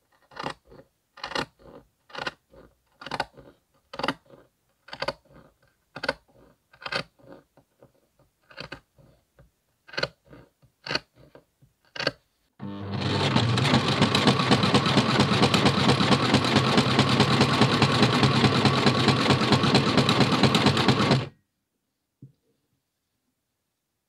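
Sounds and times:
sewing machine stitching: 3.0 - 7.4, 9.9 - 21.4.

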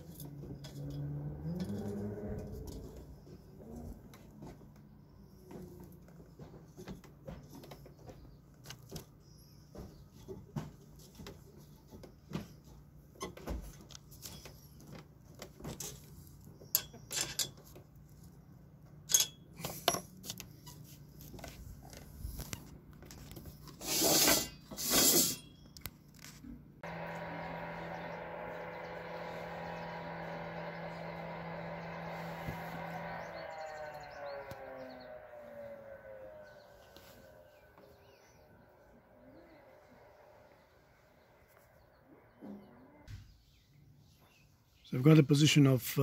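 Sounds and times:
hands handling metal parts: 13.8 - 18.1, 18.9 - 20.5
short noisy bursts: 26.8 - 35.6.

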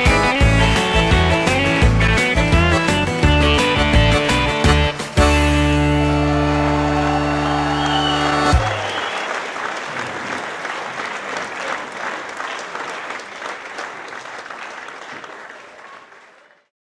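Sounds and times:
audience applauding: 5.8 - 16.7.

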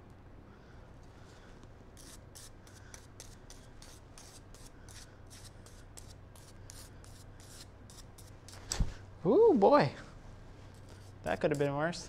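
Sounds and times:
brush strokes: 10.6 - 12.0.

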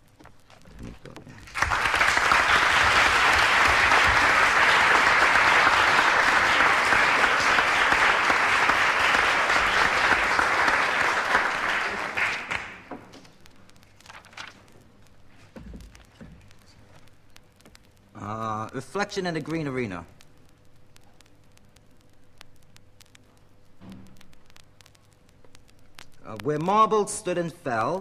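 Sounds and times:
vinyl record clicks: 0.0 - 11.5, 12.4 - 28.0
audience applauding: 1.4 - 13.1.

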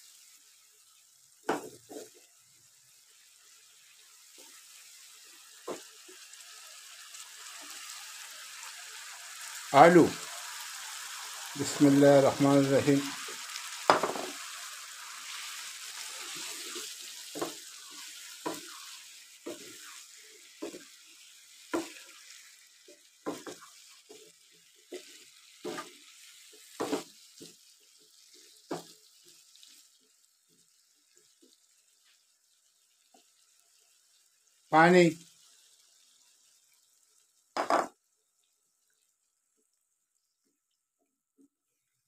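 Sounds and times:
potatoes sizzling in a frying pan: 0.0 - 40.8
wooden spatula knocking on pan: 1.5 - 2.2, 5.7 - 5.9, 13.9 - 14.4, 17.3 - 17.8, 18.4 - 18.8, 21.7 - 22.0, 23.2 - 23.7, 24.9 - 26.0, 26.8 - 27.1, 28.7 - 28.9, 37.6 - 37.9.

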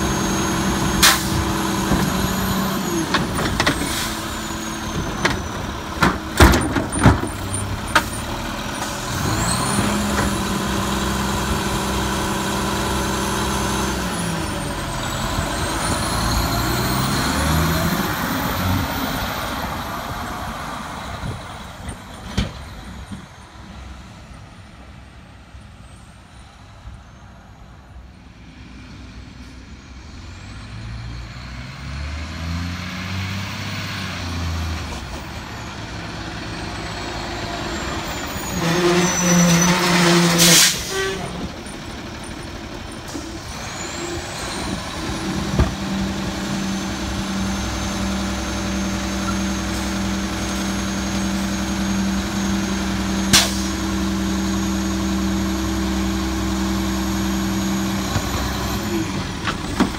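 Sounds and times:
garbage truck diesel engine: 0.0 - 59.9
air brakes hissing: 1.0 - 1.5, 40.2 - 41.4, 53.3 - 53.9.

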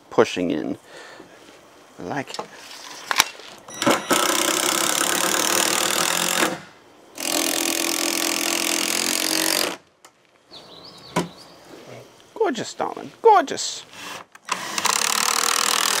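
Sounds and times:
power driver driving screws: 3.8 - 9.8, 13.9 - 16.0.

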